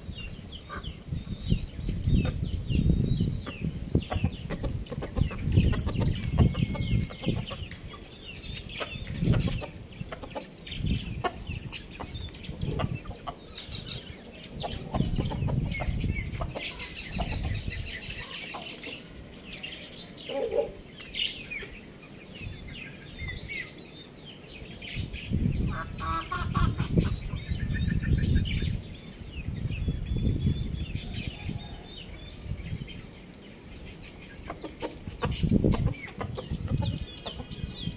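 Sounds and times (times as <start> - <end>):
low rumbling on microphone: 0.0 - 18.2, 25.0 - 33.2
small birds chirping: 0.0 - 37.9
chickens clucking: 0.6 - 22.3, 24.9 - 28.8, 33.6 - 37.9.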